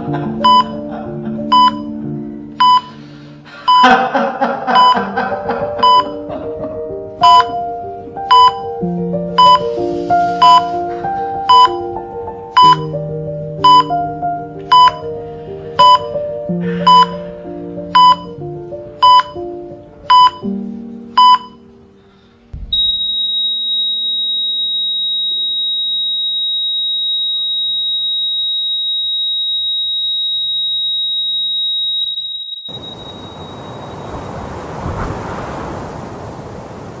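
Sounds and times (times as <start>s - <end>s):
soft music: 0.0s - 22.6s
heart monitor beeping: 0.4s - 0.8s, 1.5s - 1.9s, 2.6s - 3.0s, 3.7s - 4.0s, 4.8s - 5.0s, 5.8s - 6.2s, 7.2s - 7.6s, 8.3s - 8.7s, 9.4s - 9.6s, 10.4s - 10.7s, 11.5s - 11.9s, 12.6s - 12.9s, 13.6s - 14.0s, 14.7s - 15.1s, 15.8s - 16.2s, 16.9s - 17.2s, 18.0s - 18.4s, 19.0s - 19.4s, 20.1s - 20.5s, 21.2s - 21.6s, 22.6s - 33.7s
heart monitor flatline tone: 0.4s - 0.8s, 1.5s - 1.9s, 2.6s - 2.9s, 5.8s - 6.2s, 7.2s - 7.5s, 8.3s - 8.7s, 9.4s - 9.6s, 10.4s - 10.7s, 11.5s - 11.9s, 12.6s - 12.9s, 13.6s - 13.9s, 14.7s - 15.1s, 15.8s - 16.2s, 16.9s - 17.2s, 18.0s - 18.4s, 19.0s - 19.4s, 20.1s - 20.5s, 22.6s - 33.8s
low thud: 22.6s - 23.0s, 34.7s - 36.0s
rushing noise: 32.7s - 37.0s.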